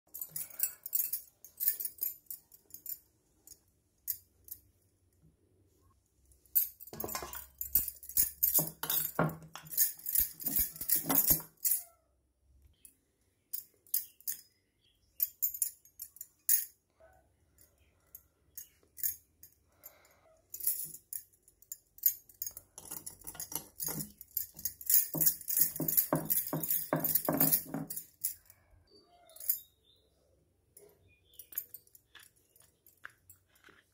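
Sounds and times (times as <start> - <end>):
jingling and clinking metal pieces: 0.1 - 4.6, 6.5 - 11.9, 13.5 - 14.6, 15.2 - 16.8, 20.6 - 28.6, 29.2 - 29.8, 30.8 - 33.9.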